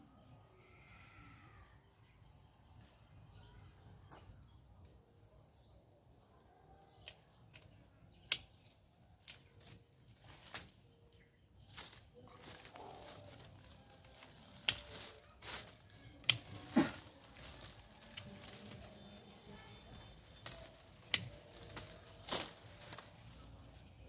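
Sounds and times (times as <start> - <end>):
pruning shears snipping: 7.0 - 8.6, 9.2 - 9.7, 14.1 - 18.8, 20.4 - 23.2
leafy branches rustling: 8.3 - 24.0.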